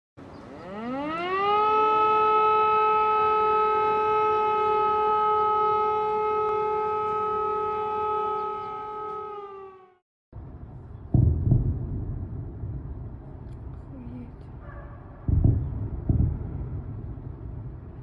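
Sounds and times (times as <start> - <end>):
air-raid siren: 0.4 - 10.0.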